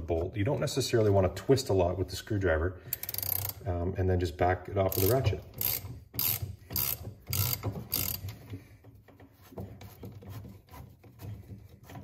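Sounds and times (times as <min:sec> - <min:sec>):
socket ratchet clicking: 0:02.9 - 0:03.6, 0:04.9 - 0:08.4.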